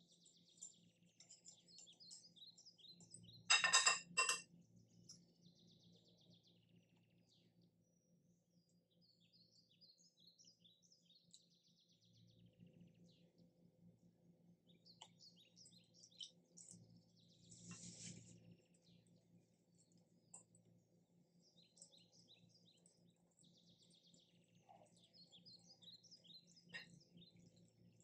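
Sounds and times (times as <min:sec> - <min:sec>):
birds chirping and twittering: 0:00.0 - 0:28.0.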